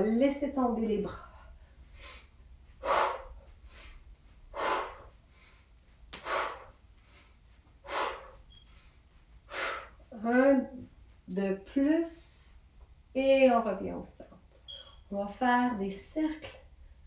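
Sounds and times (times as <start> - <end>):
woman breathing hard: 1.2 - 10.1.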